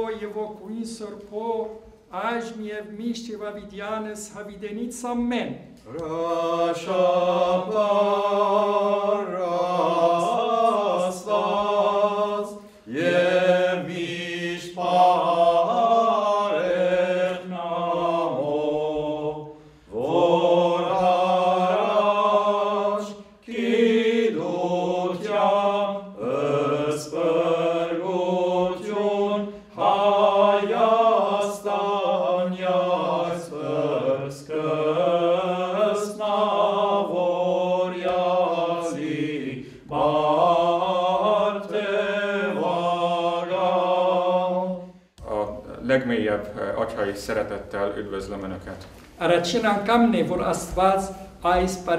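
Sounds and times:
person chanting: 0:05.9 - 0:46.5.

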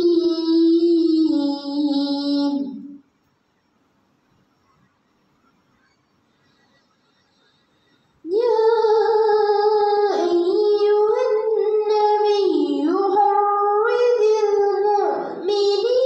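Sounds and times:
girl chanting: 0:00.0 - 0:03.0, 0:08.3 - 0:16.0.

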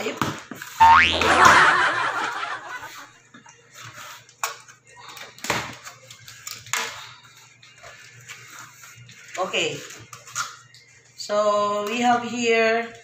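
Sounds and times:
person laughing: 0:01.2 - 0:02.6.

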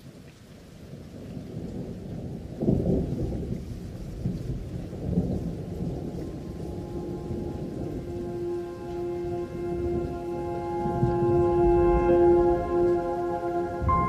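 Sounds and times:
rain: 0:00.0 - 0:14.0
rolling thunder: 0:01.3 - 0:14.0.

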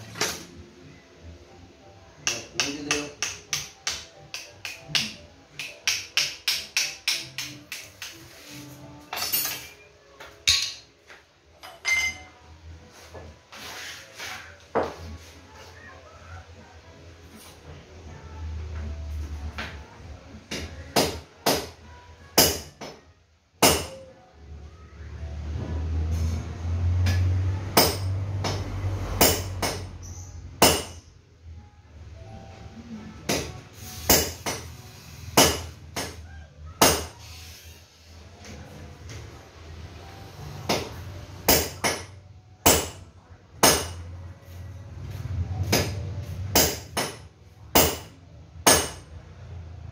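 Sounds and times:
metallic clink: 0:09.1 - 0:09.8, 0:11.6 - 0:12.4
tools scraping on workbench: 0:13.1 - 0:15.3.

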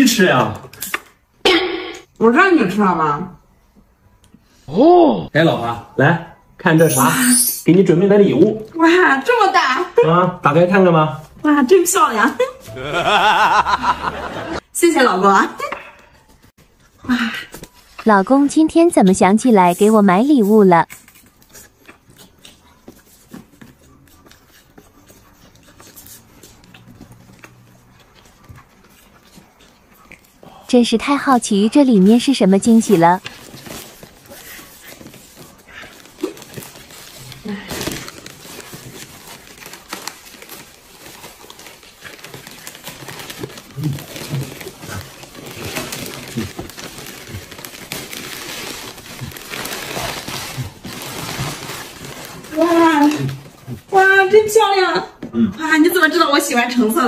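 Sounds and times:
gift wrapping clicks and rustles: 0:31.3 - 0:53.9.

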